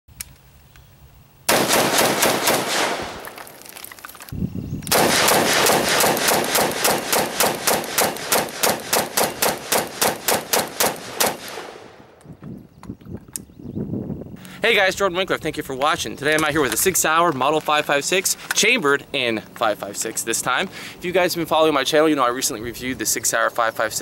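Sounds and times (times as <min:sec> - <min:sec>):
rifle shots fired rapidly: 0:01.5 - 0:03.2, 0:04.9 - 0:12.0.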